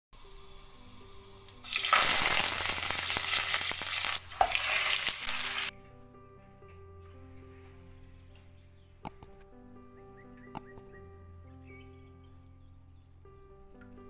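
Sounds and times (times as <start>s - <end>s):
hot oil sizzling: 0.2s - 5.7s
soft background music: 0.2s - 14.0s
click: 9.0s - 9.4s, 10.5s - 10.9s.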